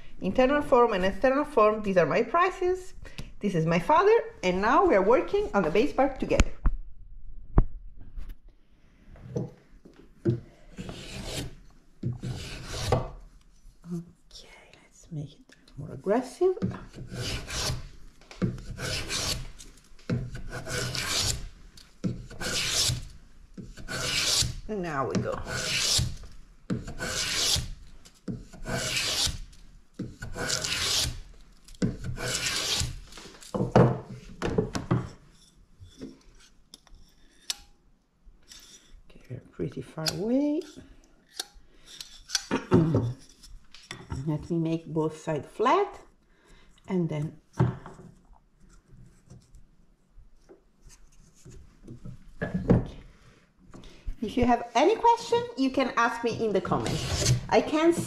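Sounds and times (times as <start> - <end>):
hand plane scraping wood: 10.7 - 13.2, 16.8 - 24.6, 25.2 - 31.2, 31.8 - 33.0, 56.4 - 58.0
plane shaving wood: 10.8 - 11.4, 12.2 - 12.9, 18.7 - 19.5, 25.4 - 26.0, 26.9 - 27.7, 28.6 - 29.4.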